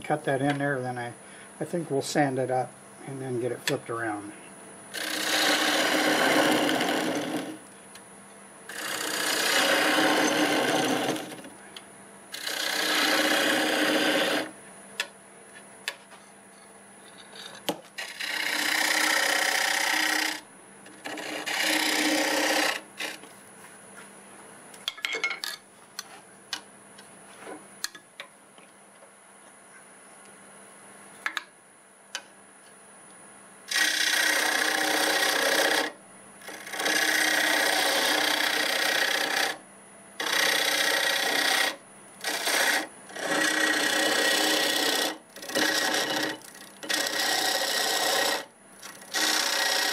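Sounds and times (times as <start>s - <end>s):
gouge cutting wood on lathe: 4.9s - 7.6s, 8.7s - 11.5s, 12.3s - 14.5s, 18.0s - 20.4s, 21.0s - 23.2s, 33.7s - 39.6s, 40.2s - 49.9s
lathe humming: 4.9s - 7.6s, 8.7s - 11.5s, 12.3s - 14.6s, 18.0s - 23.3s, 33.7s - 39.6s, 40.2s - 49.9s.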